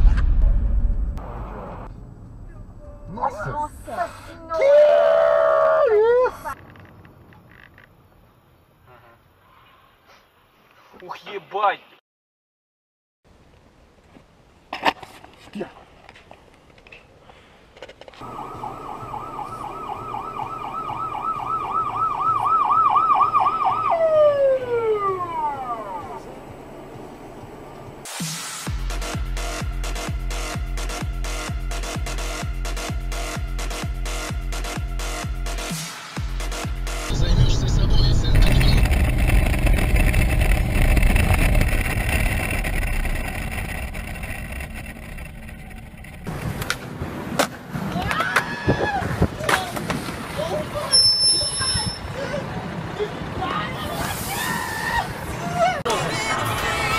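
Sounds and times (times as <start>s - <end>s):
ambulance siren yelping: 18.2s - 26.3s
motorcycle engine rumble: 37.1s - 47.3s.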